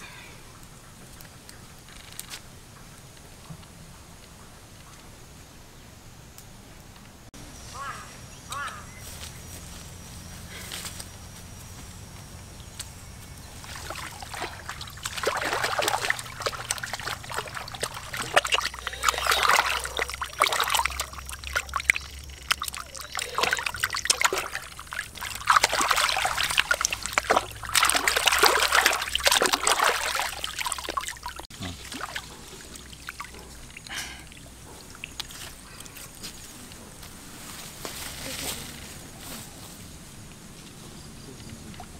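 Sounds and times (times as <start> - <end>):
water splashing and trickling: 13.3 - 36.1, 41.3 - 41.9.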